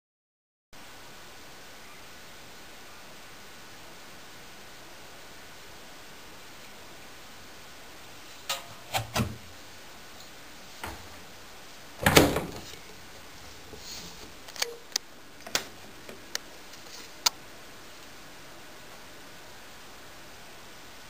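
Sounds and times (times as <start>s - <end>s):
washing machine drum clicks and knocks: 8.5s - 9.5s, 10.8s - 11.2s, 12.0s - 12.7s.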